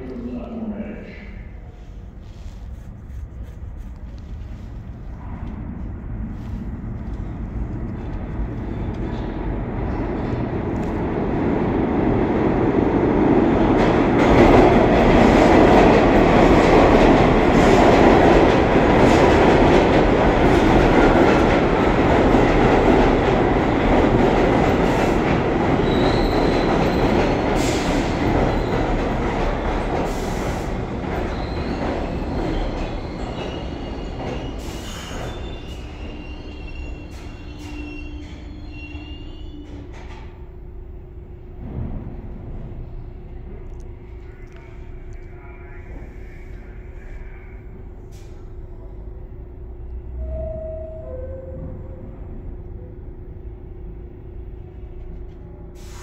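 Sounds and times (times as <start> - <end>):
subway train rumble and wheel clatter: 0.0 - 56.0
brakes squealing: 31.3 - 39.9.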